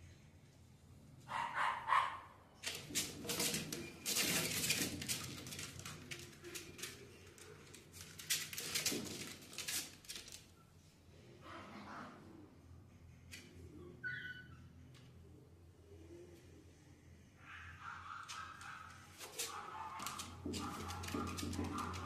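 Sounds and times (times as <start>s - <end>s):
puppy barking: 1.3s - 2.4s, 17.4s - 22.0s
scuffling and clicking: 18.3s - 22.0s.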